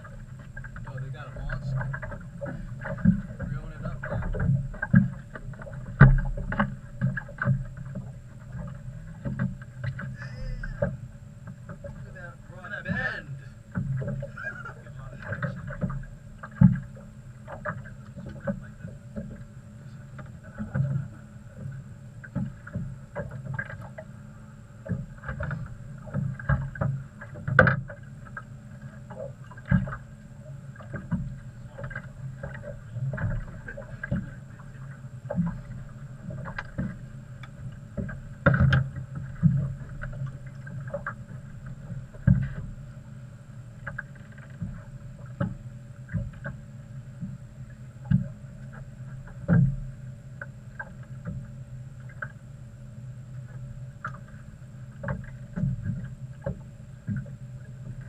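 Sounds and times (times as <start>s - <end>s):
outboard motor humming: 0.0s - 58.0s.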